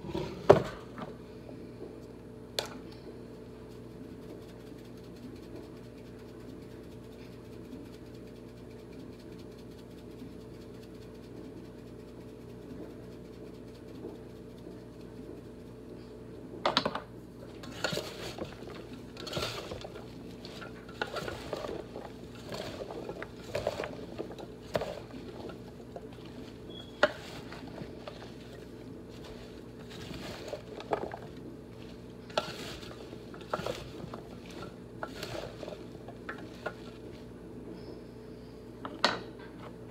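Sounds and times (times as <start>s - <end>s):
steady low hum: 0.0s - 39.9s
vegetables tossed in roasting pan: 17.5s - 37.4s.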